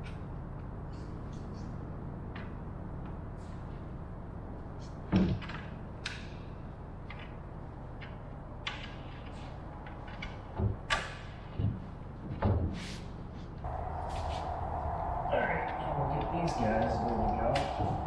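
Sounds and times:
low background hum: 0:13.2 - 0:18.0.

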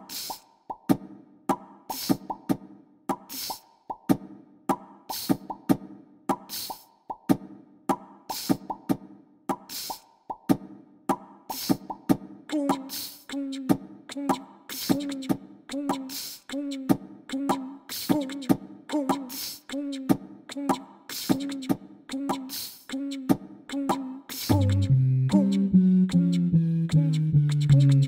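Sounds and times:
beatbox style looping beat: 0:00.0 - 0:28.0
repeated low notes: 0:24.5 - 0:28.0.

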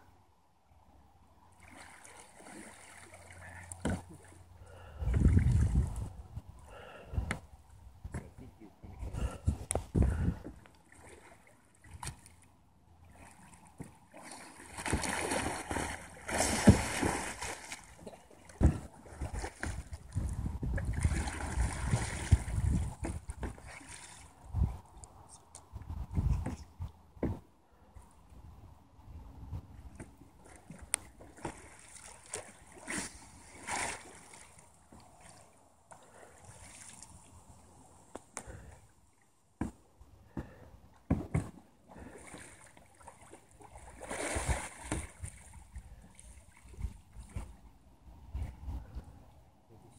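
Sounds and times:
water splashing and sloshing: 0:01.2 - 0:28.4, 0:29.5 - 0:49.9
heavy splash: 0:14.1 - 0:19.8, 0:20.9 - 0:22.7, 0:31.6 - 0:34.6.

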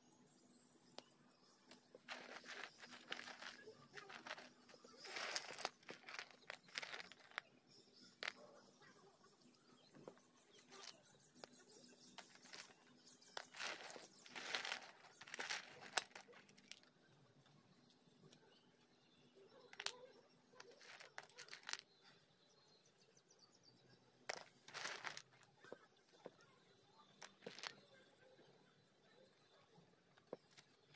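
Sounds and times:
clay chunks scraping on a plate: 0:01.7 - 0:08.6, 0:10.0 - 0:16.8, 0:20.6 - 0:21.8, 0:24.3 - 0:25.8.

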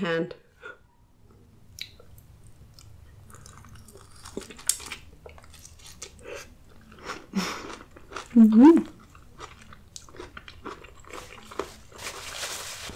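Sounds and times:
person chewing food: 0:01.3 - 0:12.0
mouth clicks and smacks: 0:01.7 - 0:02.9.

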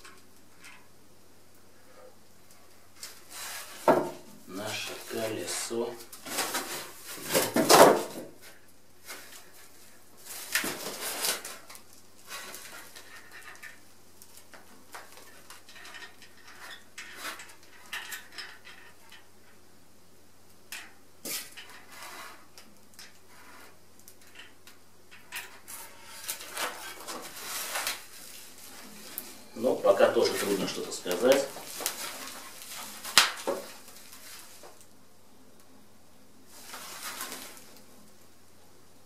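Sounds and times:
plastic film rustling: 0:02.9 - 0:19.3, 0:25.5 - 0:35.0, 0:36.5 - 0:38.2
cardboard scraping and knocking: 0:03.3 - 0:04.3, 0:06.2 - 0:08.5, 0:30.3 - 0:34.8.

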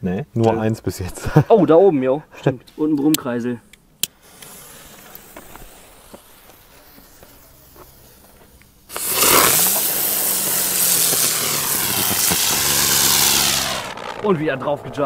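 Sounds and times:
fuse sputtering: 0:04.0 - 0:15.0
firework spinner hissing and humming: 0:04.1 - 0:15.0.

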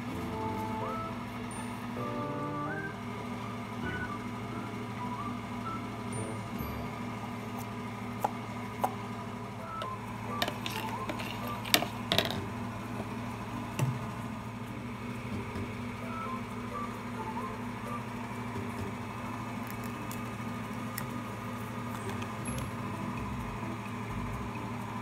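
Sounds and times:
steady low hum: 0:00.0 - 0:25.0
sharp clicks and knocks: 0:10.4 - 0:12.5.

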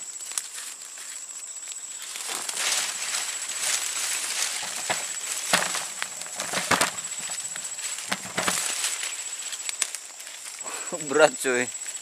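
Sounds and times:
high-pitched insect drone: 0:00.0 - 0:12.0
sharp knocks and rustles: 0:02.1 - 0:10.5.

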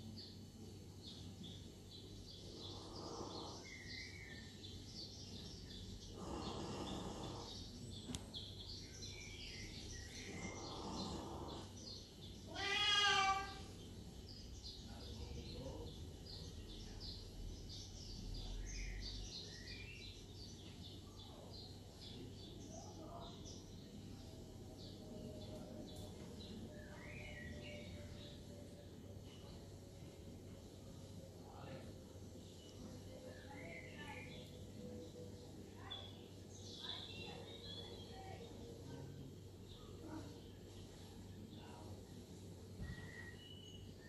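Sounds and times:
faint bird chirping from television: 0:00.0 - 0:44.0
cat meowing: 0:12.5 - 0:13.7.

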